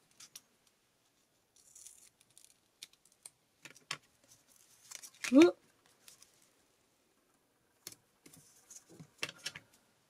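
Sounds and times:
tape rustling: 0:00.0 - 0:06.6.

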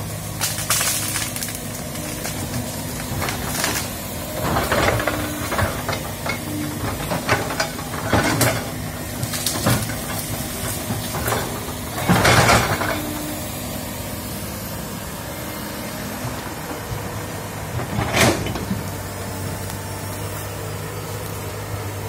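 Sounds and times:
excavator diesel engine running: 0:00.0 - 0:22.0
branches cracking and crashing: 0:00.3 - 0:05.5.

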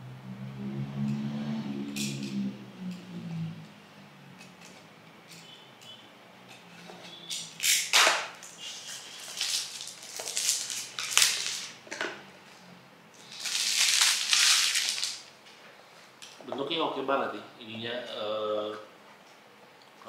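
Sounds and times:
plastic shrink-wrap crinkling: 0:08.4 - 0:11.8, 0:13.2 - 0:15.3.

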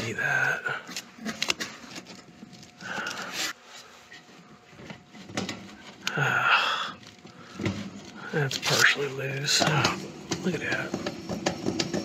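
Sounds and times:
man breathing out heavily: 0:02.8 - 0:03.6, 0:06.1 - 0:08.4.

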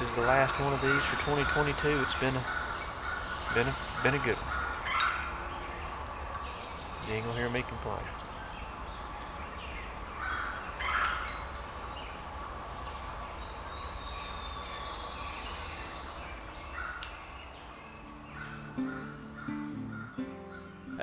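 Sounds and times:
woodland birds calling: 0:00.0 - 0:21.0
acoustic guitar music: 0:17.8 - 0:21.0.

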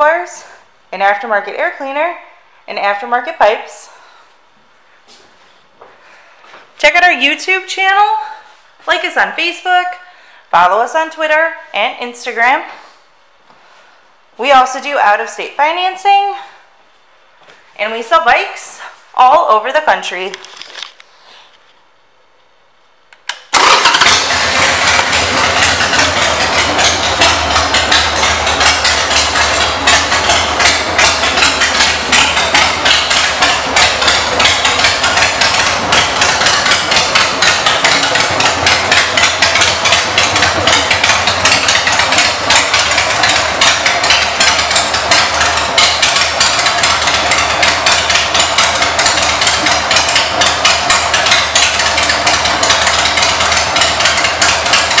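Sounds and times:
motorcycle engine idling: 0:23.5 - 0:55.0.

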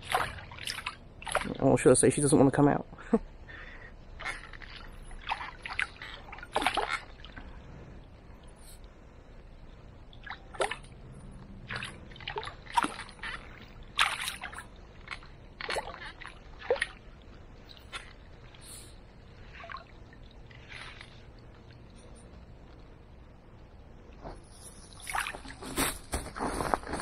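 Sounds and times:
water splashing in a landing net: 0:00.0 - 0:01.7, 0:04.2 - 0:07.4, 0:11.6 - 0:17.2, 0:19.4 - 0:21.8, 0:24.9 - 0:26.0.

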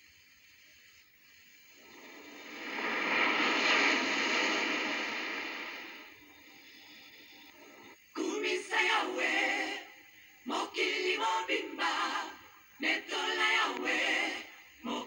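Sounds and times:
faint hiss: 0:00.0 - 0:15.0
whoosh: 0:01.8 - 0:06.7.

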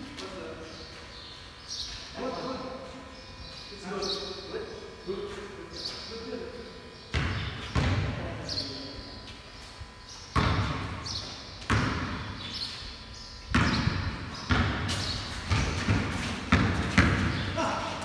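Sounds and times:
basketball bouncing on concrete: 0:07.1 - 0:08.4, 0:10.3 - 0:12.8, 0:13.5 - 0:17.7.

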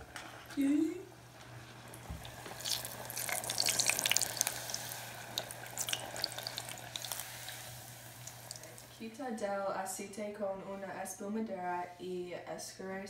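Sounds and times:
low steady hum: 0:00.0 - 0:13.0
deep-frying sizzle with pops: 0:01.4 - 0:09.0.

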